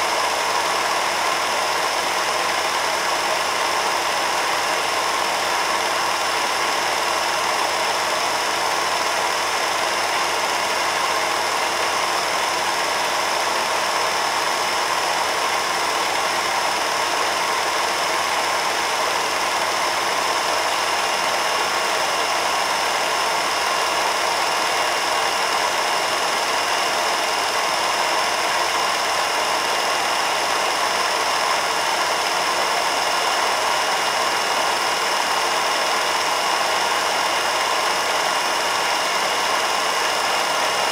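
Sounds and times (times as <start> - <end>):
film projector whirring: 0.0 - 40.9.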